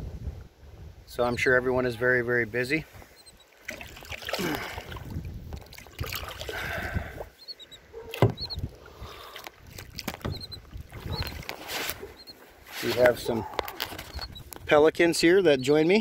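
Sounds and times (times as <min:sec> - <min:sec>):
water splashing against kayak hull: 0:03.0 - 0:07.4, 0:08.0 - 0:14.7.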